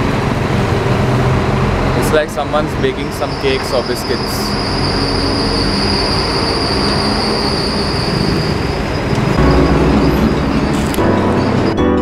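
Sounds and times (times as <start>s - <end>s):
vehicle passing rumble: 0.0s - 6.3s
city street traffic: 0.0s - 12.0s.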